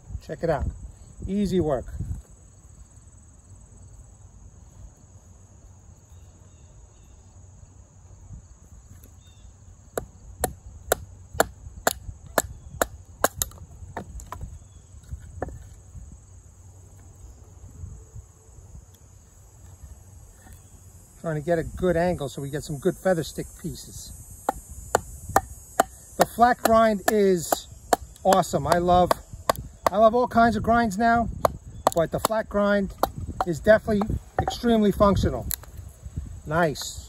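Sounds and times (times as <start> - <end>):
crickets chirping: 0.0 - 37.0
knife knocking into wood: 33.0 - 34.7.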